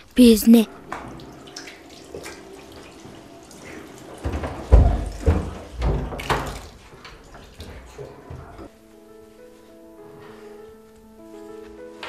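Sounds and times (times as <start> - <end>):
tap water into washbasin: 0.8 - 8.7
water splashing onto face: 0.9 - 8.6.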